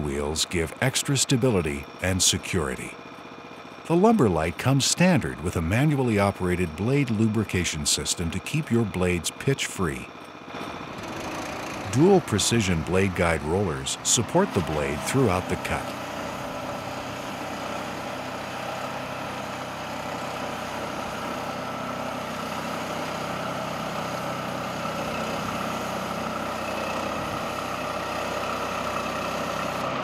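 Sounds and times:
gas engine running under load: 0:00.0 - 0:30.0
band saw cutting log: 0:10.6 - 0:19.5.

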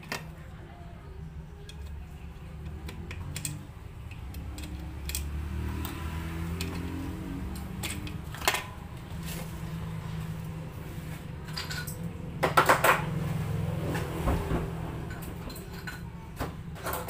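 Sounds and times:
clicks and taps of metal parts: 0:00.0 - 0:00.4, 0:01.6 - 0:08.8.

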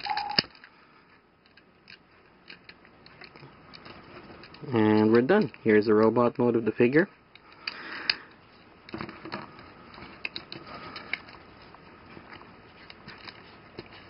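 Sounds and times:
light handling noise: 0:00.0 - 0:14.0
plastic toy parts clicking: 0:09.9 - 0:11.4.

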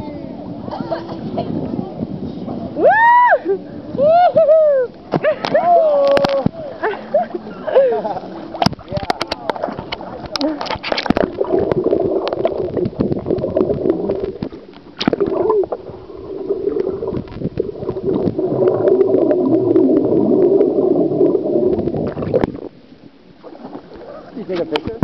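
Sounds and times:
small underwater clicks and knocks: 0:04.9 - 0:06.6, 0:08.5 - 0:19.1, 0:23.4 - 0:25.0
exhaled air bubbles: 0:07.5 - 0:25.0
underwater gurgling and bubbling: 0:07.5 - 0:25.0.

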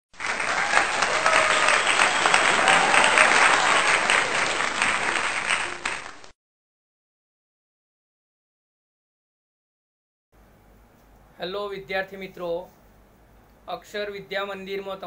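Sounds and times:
crowd clapping: 0:00.1 - 0:06.4.

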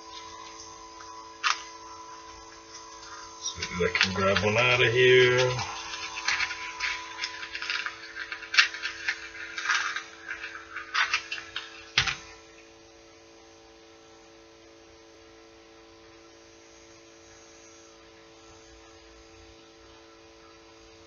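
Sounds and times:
faint electrical hum: 0:00.0 - 0:21.0
package rustling and clicking: 0:05.3 - 0:12.5.

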